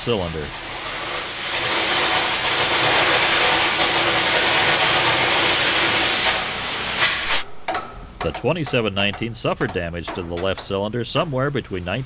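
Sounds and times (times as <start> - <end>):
arc torch hissing: 0.0 - 7.6.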